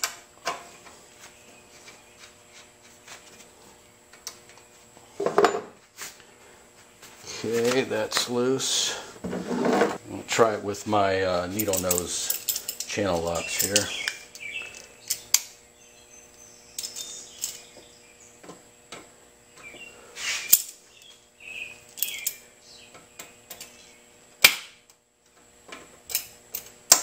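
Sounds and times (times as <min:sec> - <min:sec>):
pliers clicking on metal: 0:11.6 - 0:15.5.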